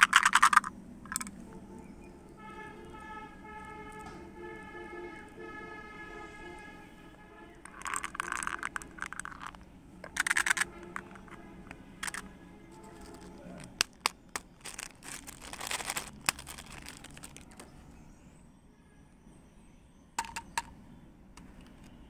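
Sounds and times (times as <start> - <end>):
plastic wrapper crinkling: 0.0 - 1.3, 7.7 - 11.4, 12.0 - 17.7
candy box rattling: 0.0 - 1.4, 7.6 - 17.6, 20.2 - 20.7.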